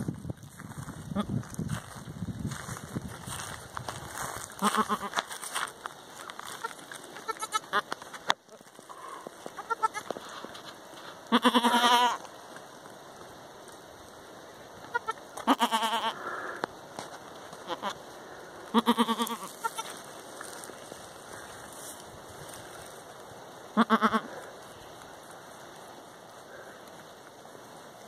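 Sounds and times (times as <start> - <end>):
faint crackling: 0.3 - 28.0
goats bleating: 4.6 - 5.2, 6.6 - 8.0, 8.6 - 10.1, 11.3 - 12.3, 14.9 - 16.3, 17.6 - 18.0, 18.7 - 20.0, 23.8 - 24.5.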